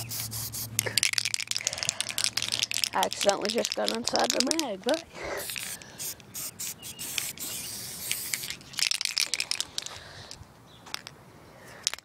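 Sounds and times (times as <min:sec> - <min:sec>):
spray paint can hissing: 0:00.0 - 0:09.9
rattling clicks: 0:00.8 - 0:05.8.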